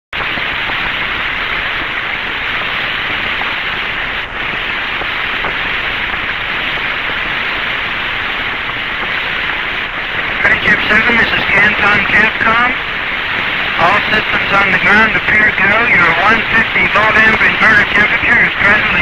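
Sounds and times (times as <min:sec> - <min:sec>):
radio static hiss: 0:00.2 - 0:19.0.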